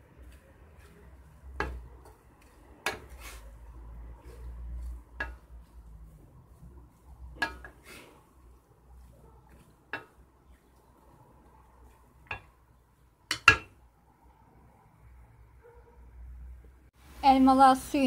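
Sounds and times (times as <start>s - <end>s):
spoon scraping a pot: 0.2s - 11.1s
wooden spoon knocking on pot: 1.5s - 2.2s, 4.8s - 5.6s, 7.3s - 7.8s, 9.5s - 10.3s, 12.2s - 12.6s, 13.3s - 13.8s.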